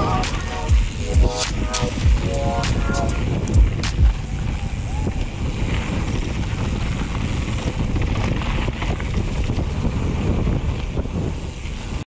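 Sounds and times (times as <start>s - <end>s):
wind buffeting microphone: 0.0s - 12.0s
bike tyres rumbling on dirt: 3.2s - 12.0s
bike rattling and knocking: 5.7s - 11.5s.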